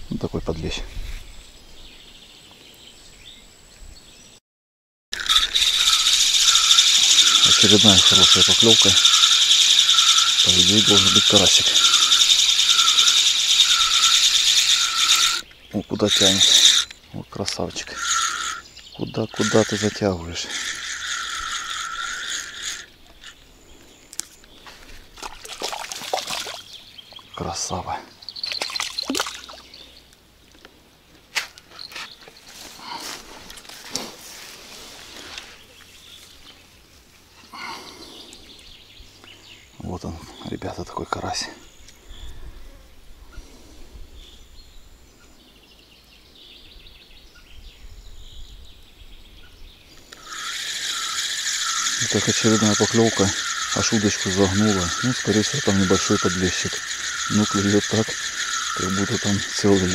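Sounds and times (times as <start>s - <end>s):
fishing reel ratcheting: 5.2s - 15.4s, 16.1s - 17.0s, 17.9s - 18.6s, 19.4s - 23.4s, 50.1s - 59.9s
faint high chirping: 5.2s - 24.2s, 28.1s - 30.1s.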